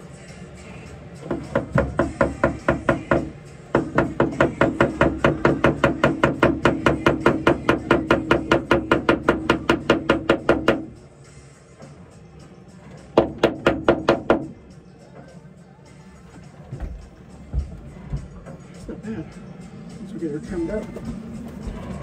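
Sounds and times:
rapid even knocking: 1.3s - 10.9s, 13.2s - 14.5s.

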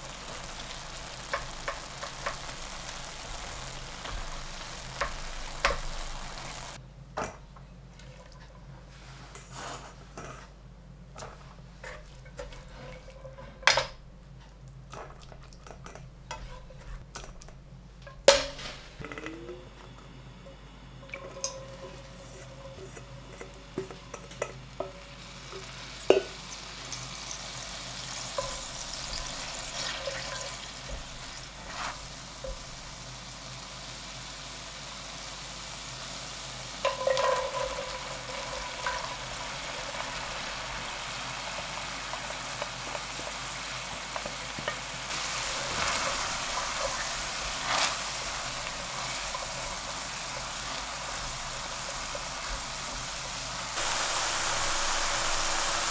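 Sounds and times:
meat juices sizzling in a pan: 0.0s - 6.8s, 21.3s - 55.9s
utensils clinking on a pan: 36.8s - 40.0s.

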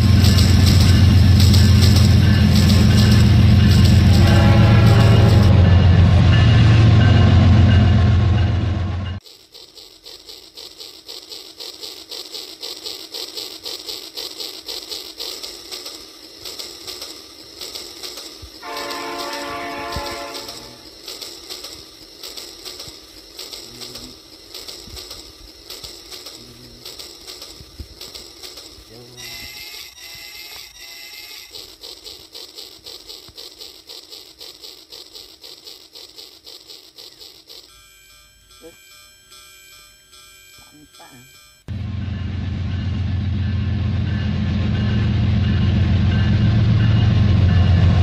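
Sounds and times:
toy train horn: 0.0s - 6.3s, 18.6s - 21.3s, 28.9s - 31.7s, 37.0s - 41.7s
toy train chugging: 0.0s - 41.8s, 42.7s - 48.0s.

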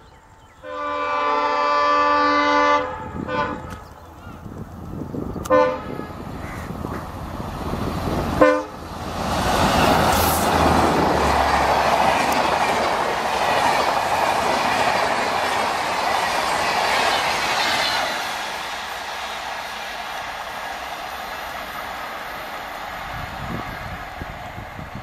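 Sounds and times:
diesel locomotive engine rumble: 0.0s - 25.0s
train horn blast: 0.6s - 3.8s, 5.4s - 6.3s, 8.4s - 8.8s
train wheels rattling on rails: 3.6s - 25.0s.

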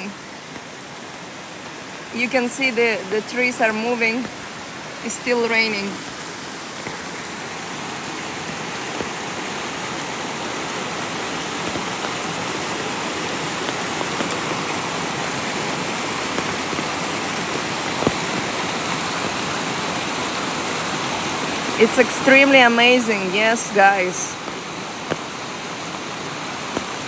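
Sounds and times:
falling rain: 0.0s - 27.0s
waterfall rushing: 0.0s - 27.0s.

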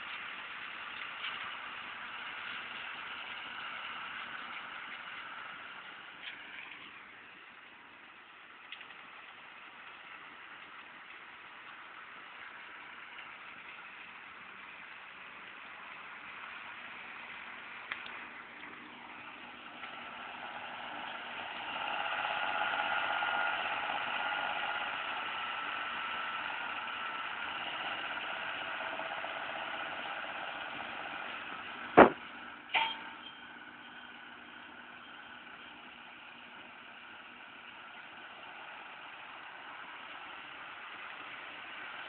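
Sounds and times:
tractor running under load: 0.0s - 42.0s
sharp knocks: 32.0s - 32.2s.

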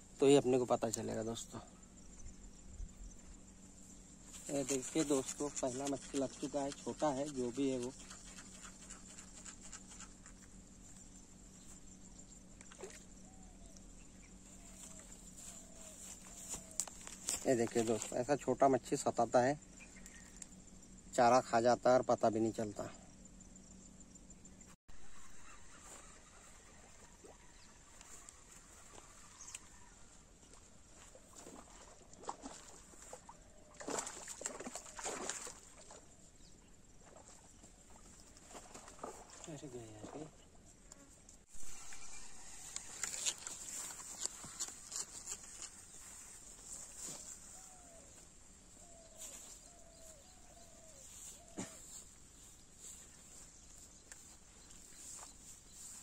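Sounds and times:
quiet outdoor ambience: 0.0s - 56.0s
rustling and scuffing handling: 14.5s - 18.1s, 42.6s - 48.4s.

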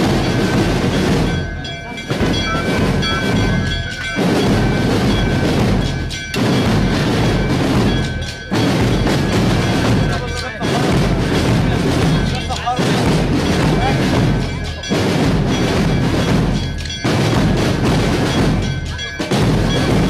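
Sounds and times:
steady high note: 0.0s - 17.6s
marching band drumming: 0.0s - 20.0s.

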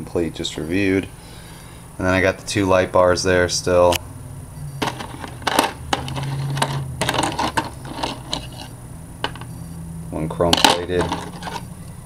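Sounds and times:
plastic pieces clicking and rattling: 4.8s - 9.5s, 10.6s - 11.6s.

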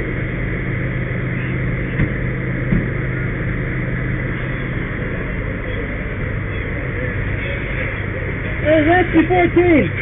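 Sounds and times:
fire engine humming: 0.0s - 10.0s.

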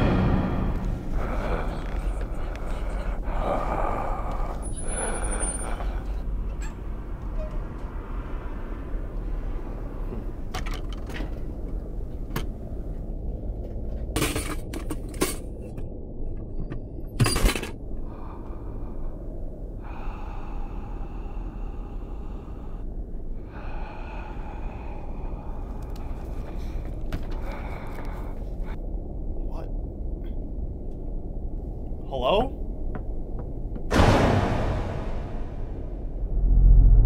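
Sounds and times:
loud bang: 0.0s - 2.3s, 33.9s - 37.0s
low rumble: 0.0s - 10.5s, 11.2s - 32.0s, 32.6s - 37.0s.

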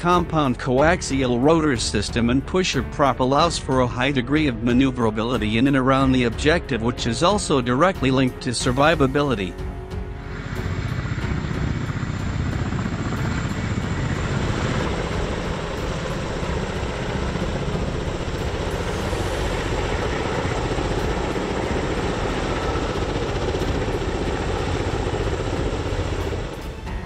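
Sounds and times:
helicopter rotor noise: 8.1s - 27.0s.

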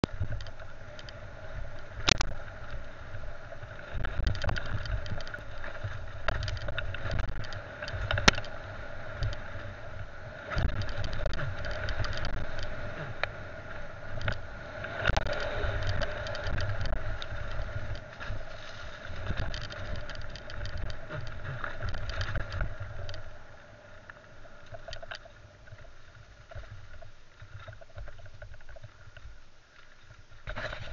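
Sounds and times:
rattles and knocks from rough ground: 4.0s - 8.5s, 10.6s - 13.3s, 15.0s - 23.3s.

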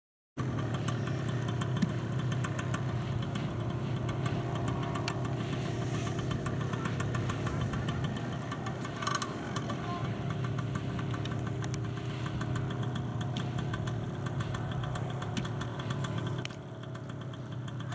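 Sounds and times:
paramotor engine idling: 0.4s - 17.9s.

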